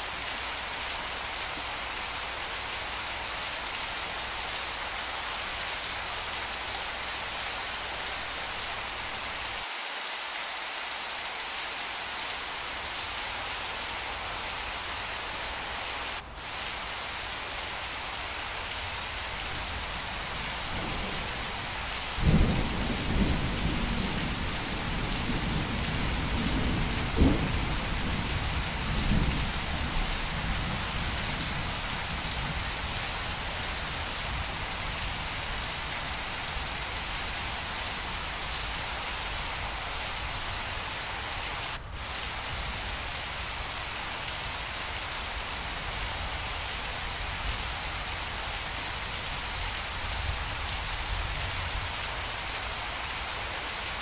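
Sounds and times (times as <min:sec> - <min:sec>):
steady rain: 0:00.0 - 0:54.0
thunder rumbling: 0:19.5 - 0:35.6.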